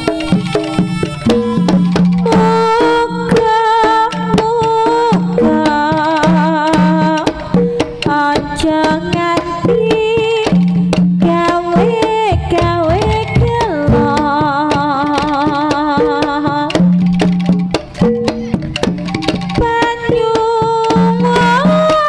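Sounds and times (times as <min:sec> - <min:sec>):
hand drums fast beat: 0:00.0 - 0:22.0
wavering melody line: 0:12.3 - 0:14.6.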